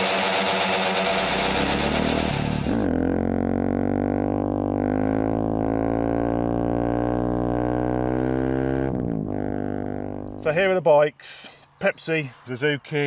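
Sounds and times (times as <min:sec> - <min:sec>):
low buzzing drone music: 0:00.0 - 0:10.5.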